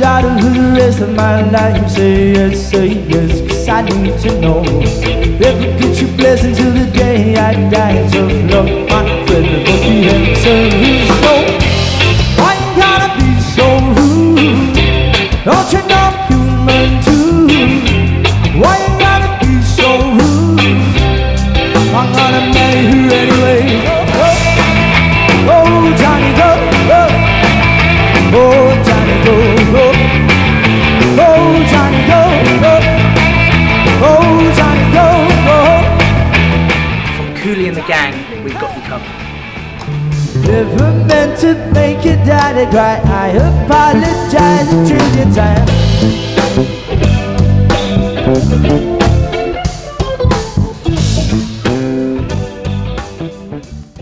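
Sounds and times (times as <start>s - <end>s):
man singing: 0.0s - 36.2s, 40.3s - 46.5s
bass guitar: 0.0s - 54.0s
drums: 0.0s - 54.0s
electric guitar: 0.0s - 54.0s
rock band playing: 0.0s - 54.0s.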